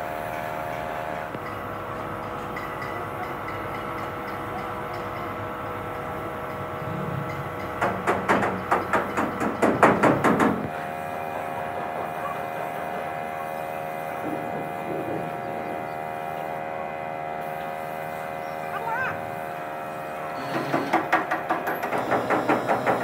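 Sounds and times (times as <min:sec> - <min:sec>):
steady hum: 0:00.0 - 0:20.6
hammer striking metal: 0:00.6 - 0:10.7.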